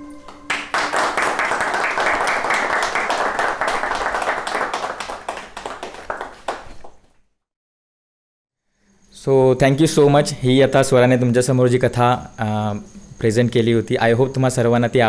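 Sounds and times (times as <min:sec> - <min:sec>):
people clapping: 0:00.1 - 0:07.2.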